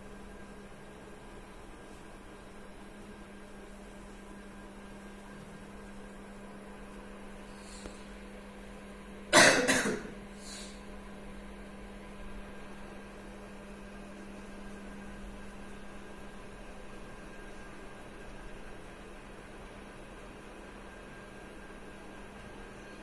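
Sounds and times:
steady low hum: 0.0s - 23.0s
person coughing: 9.3s - 10.2s.

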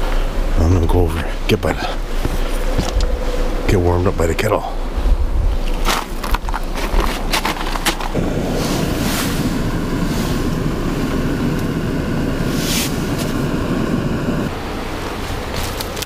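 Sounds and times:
camp stove flame rushing: 5.6s - 16.0s.

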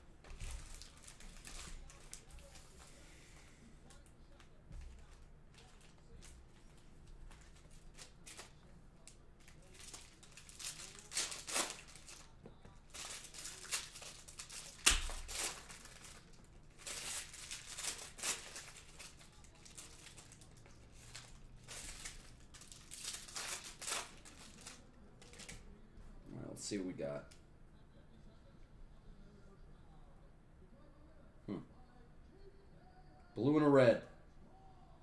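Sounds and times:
foil wrappers crinkling and tearing: 0.2s - 3.0s, 3.9s - 25.7s.

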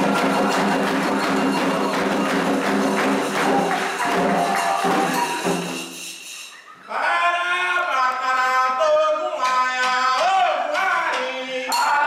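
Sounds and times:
hand drums beating fast rhythm: 0.0s - 6.0s
person singing: 6.9s - 12.0s.

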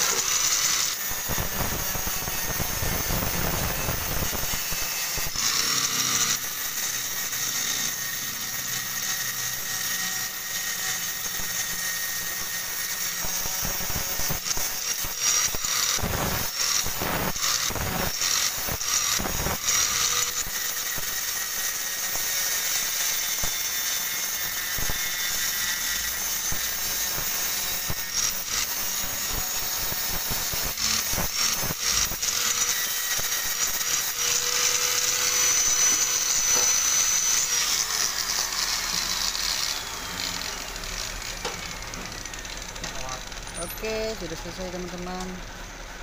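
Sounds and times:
angle grinder grinding steel: 0.0s - 46.0s.

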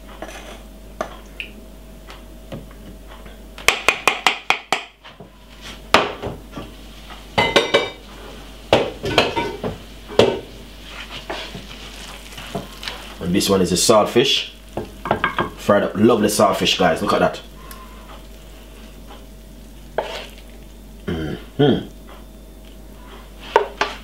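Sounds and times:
dishes and utensils clattering: 7.4s - 8.0s, 8.8s - 10.5s.

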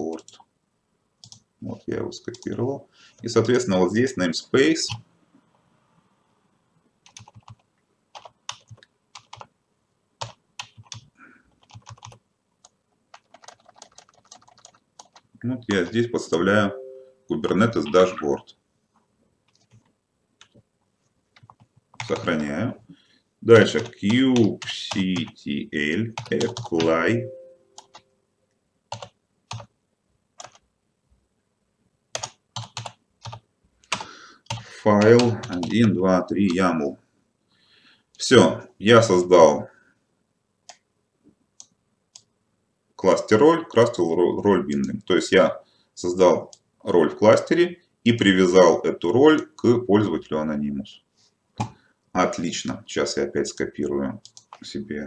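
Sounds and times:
keyboard typing: 1.2s - 1.5s, 7.0s - 9.5s, 10.2s - 15.3s, 19.5s - 20.6s, 21.3s - 22.4s, 23.6s - 25.4s, 26.1s - 27.0s, 27.8s - 28.1s, 28.9s - 29.7s, 30.4s - 30.6s, 32.1s - 36.7s, 53.8s - 54.7s.

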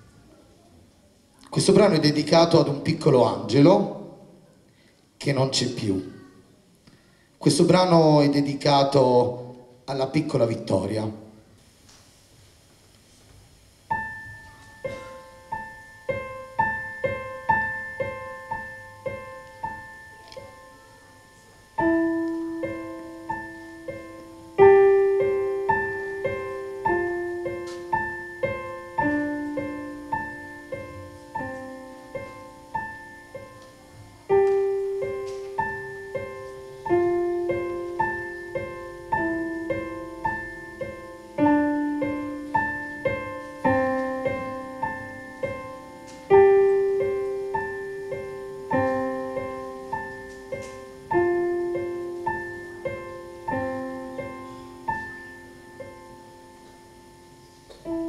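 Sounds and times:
digital piano playing gentle piece: 13.7s - 58.0s.

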